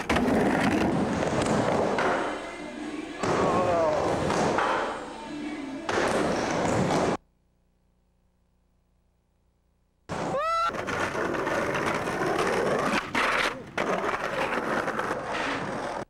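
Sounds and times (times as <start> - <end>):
skateboard rolling on pavement: 0.0 - 2.0, 10.1 - 16.0.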